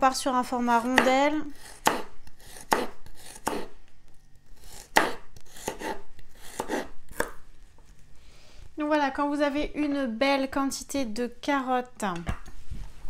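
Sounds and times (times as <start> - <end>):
knife chopping on wooden board: 0.8 - 3.7, 4.6 - 7.4.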